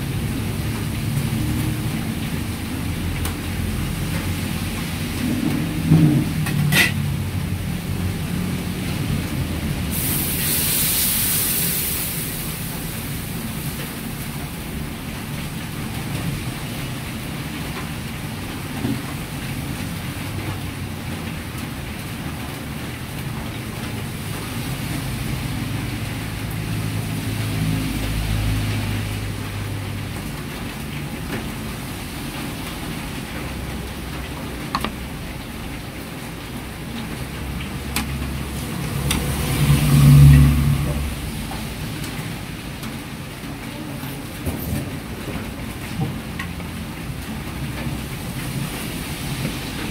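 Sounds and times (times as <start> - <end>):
gas burner roaring: 0.0 - 43.5
sauce hissing in wok: 9.9 - 13.1.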